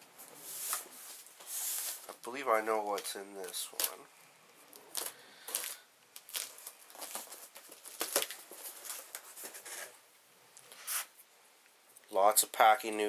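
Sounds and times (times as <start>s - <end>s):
packing tape ripping: 4.7s - 9.9s
cardboard scraping: 7.0s - 10.0s.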